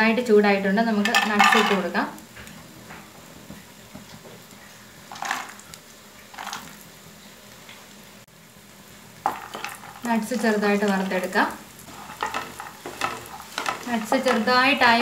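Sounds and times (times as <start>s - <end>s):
nuts sizzling in a pan: 0.2s - 15.0s
spoon scraping a pan: 9.2s - 11.1s, 11.8s - 15.0s.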